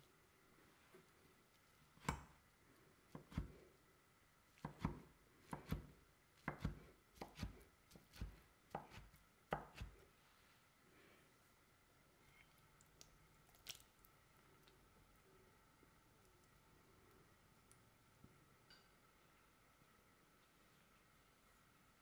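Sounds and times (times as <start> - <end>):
knife chopping on wooden board: 4.6 - 10.0.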